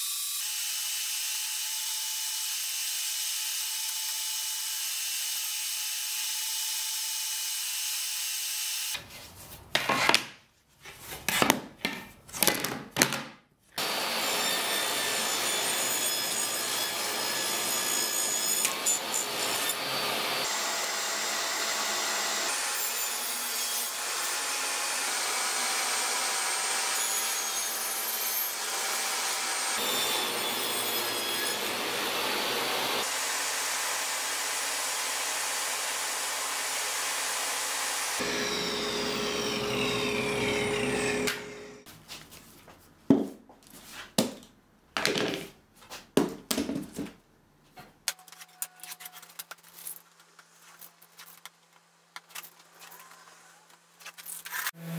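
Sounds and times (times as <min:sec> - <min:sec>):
table saw cutting wood: 0:13.8 - 0:41.9.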